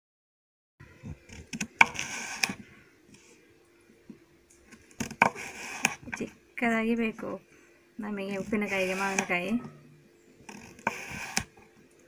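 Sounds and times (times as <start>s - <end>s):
knife scraping cuts: 1.2s - 2.6s, 5.0s - 6.2s, 8.4s - 9.7s, 10.5s - 11.6s.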